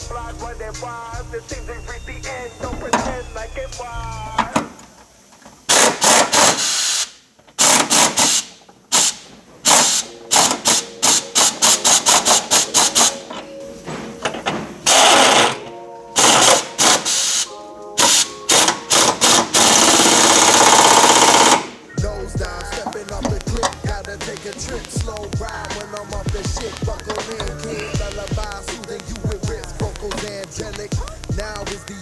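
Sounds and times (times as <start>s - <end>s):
impact wrench hammering: 7.6s - 13.2s, 18.0s - 21.7s, 22.4s - 32.0s.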